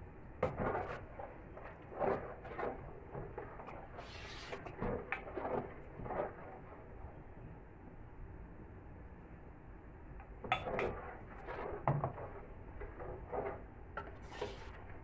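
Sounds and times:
ladle scraping metal pot: 0.4 - 6.8, 10.5 - 15.0.

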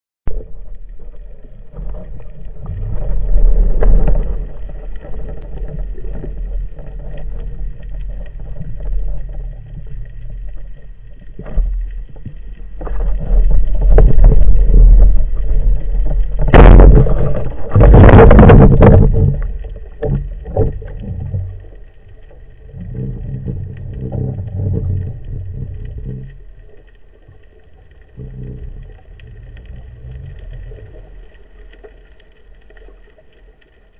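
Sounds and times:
underwater rumble and swish: 0.3 - 33.9.

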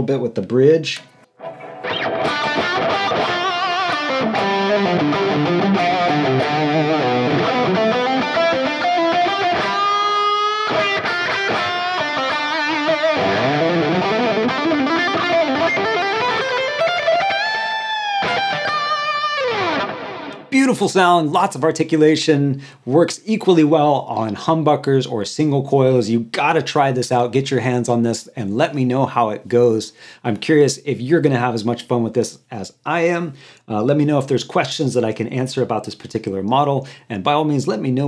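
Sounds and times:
overdriven electric guitar lead: 1.3 - 20.6.

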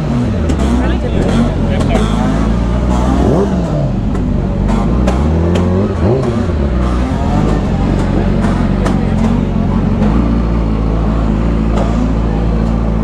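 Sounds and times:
crowd: 0.0 - 13.0
motorcycle engine revving: 0.0 - 13.0
motorcycle engines running: 0.0 - 13.0.

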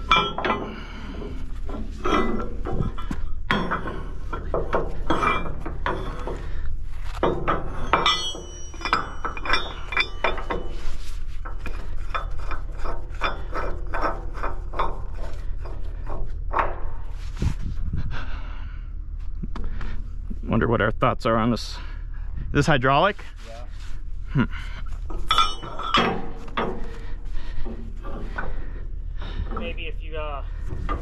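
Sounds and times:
high metallic ringing: 0.0 - 17.2, 24.8 - 30.7
steel shackle clinking and rattling: 0.0 - 17.7, 24.6 - 31.0
steady low rumble: 0.0 - 31.0.

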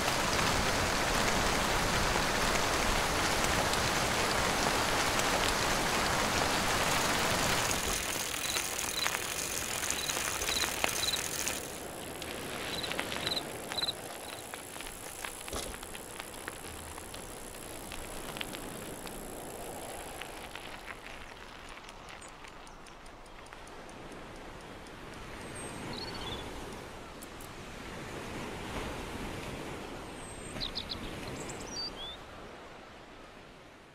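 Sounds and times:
surf washing: 0.0 - 22.7
faint clicks: 6.6 - 27.6.

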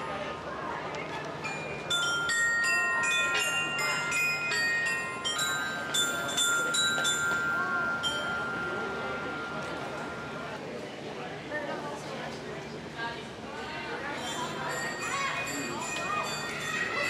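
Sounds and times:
bell-like melody: 1.4 - 10.8, 14.1 - 17.0.

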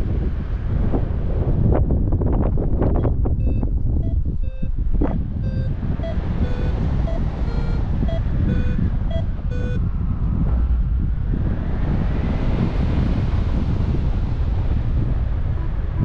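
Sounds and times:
wind noise on microphone: 0.0 - 16.0
variometer beeping in two tones: 2.9 - 9.8.

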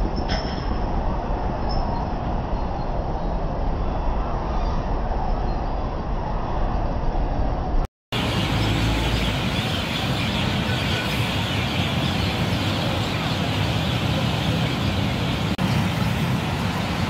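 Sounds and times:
heavy road traffic hum: 0.0 - 17.0.

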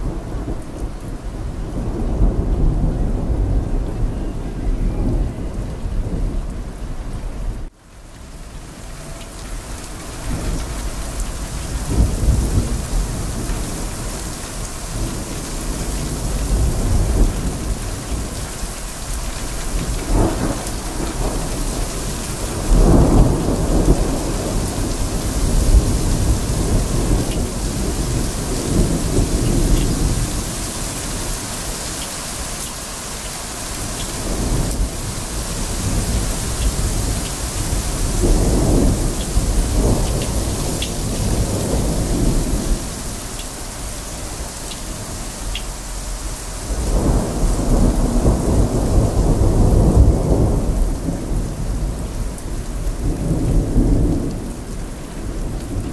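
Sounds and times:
rolling thunder: 0.0 - 7.7, 9.0 - 31.6, 33.8 - 55.9
heavy rain falling: 0.0 - 55.9.

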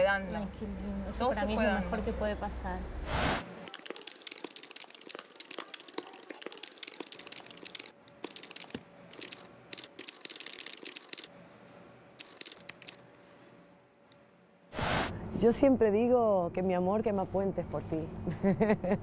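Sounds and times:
computer keyboard typing: 3.7 - 11.3, 12.2 - 13.0.

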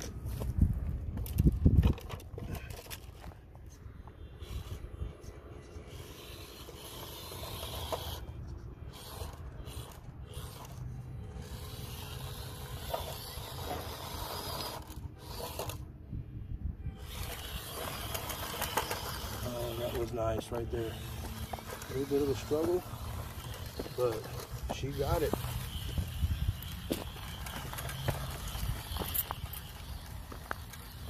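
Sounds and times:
tires scraping over rock: 0.0 - 15.9, 16.9 - 31.0
toy car motor and gears: 4.2 - 15.9, 16.9 - 31.0.

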